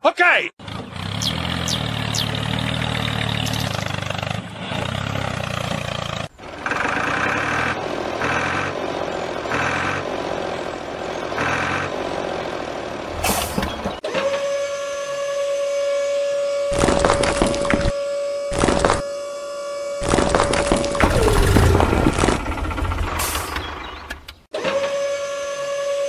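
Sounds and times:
diesel tractor engine running: 0.6s - 14.0s, 20.7s - 24.5s.

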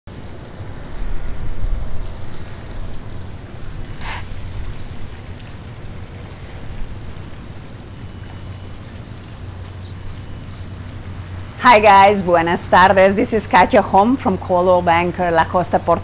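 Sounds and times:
short hiss: 4.0s - 4.5s.

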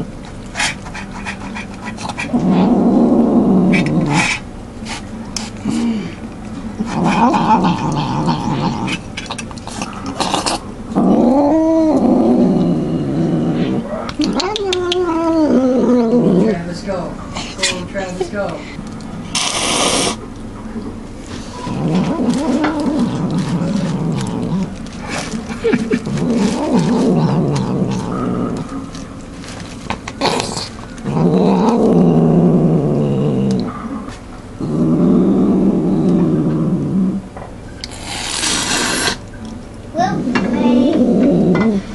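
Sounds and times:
cat growling: 0.7s - 4.5s, 6.8s - 16.8s, 19.3s - 20.2s, 21.4s - 29.1s, 30.0s - 39.2s, 40.0s - 41.9s
wet eating clicks: 6.3s - 10.6s, 14.1s - 15.4s, 21.9s - 29.3s, 33.4s - 33.7s
cat moaning call: 11.0s - 16.6s, 25.7s - 28.7s, 40.3s - 41.9s.

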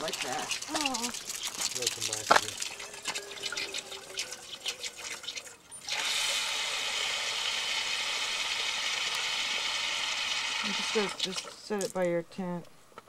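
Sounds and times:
light drips and taps: 0.0s - 5.6s
tap water running into container: 0.0s - 12.1s.

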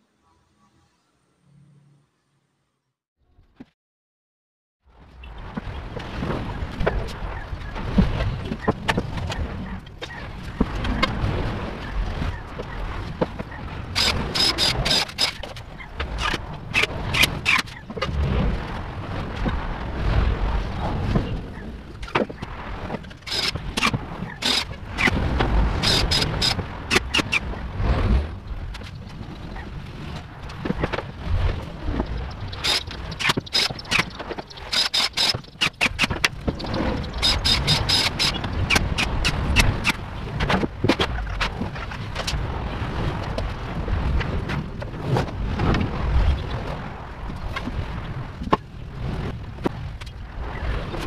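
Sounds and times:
cordless drill: 14.0s - 15.4s.

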